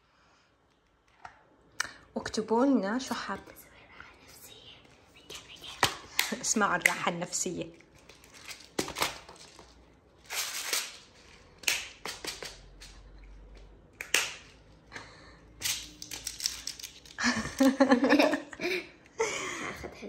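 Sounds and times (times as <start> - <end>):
plastic beads rattling: 8.0 - 13.0, 15.6 - 17.7.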